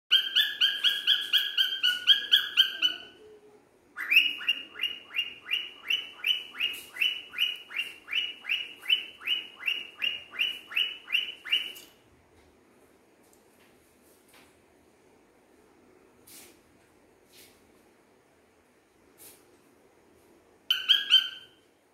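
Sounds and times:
cockatiel chirping: 0.1s - 3.2s, 4.0s - 11.8s, 20.7s - 21.6s.

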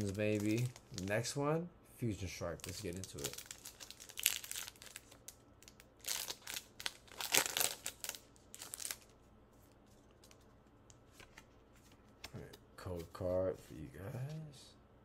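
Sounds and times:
foil wrapper crinkling: 0.0s - 1.2s, 2.6s - 9.1s
faint room noise: 0.0s - 15.0s.

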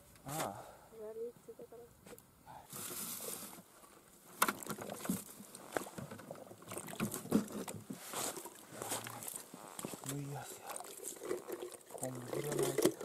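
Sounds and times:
skimmer scraping slush and ice: 7.5s - 13.0s.

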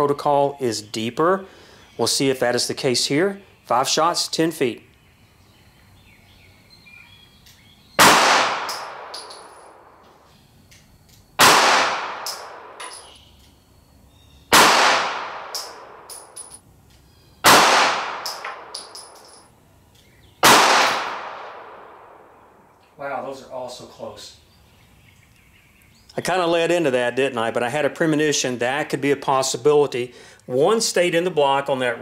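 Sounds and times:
handgun shots echoing: 8.0s - 9.9s, 11.4s - 13.2s, 14.5s - 16.6s, 17.4s - 19.5s, 20.4s - 22.2s
light metallic pings: 8.7s - 10.1s, 12.3s - 13.6s, 18.3s - 19.5s.

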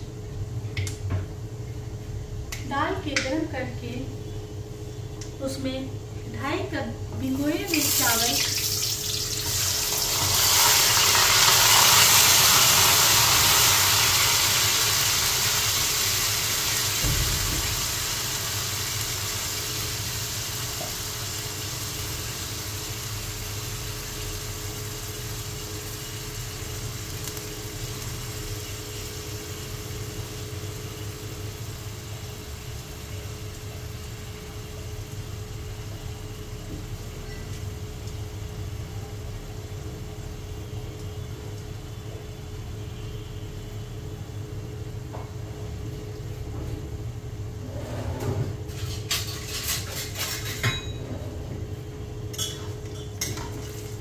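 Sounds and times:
rice sizzling in hot oil: 7.2s - 42.6s, 52.2s - 54.0s.

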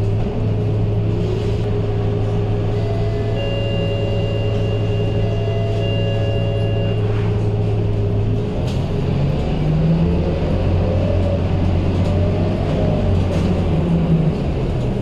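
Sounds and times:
bus diesel engine idling: 0.0s - 15.0s
steady high tones: 2.8s - 7.2s.

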